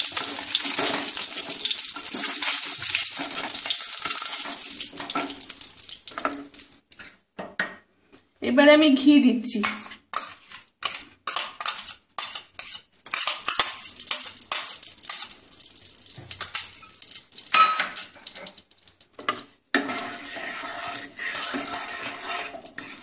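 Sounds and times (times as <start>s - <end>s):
wooden spatula scraping pan: 0.0s - 5.4s, 9.6s - 15.3s, 19.3s - 23.0s
hot oil sizzling: 0.0s - 7.0s, 10.1s - 23.0s
metal spoon scraping steel pot: 9.6s - 15.4s, 19.8s - 23.0s.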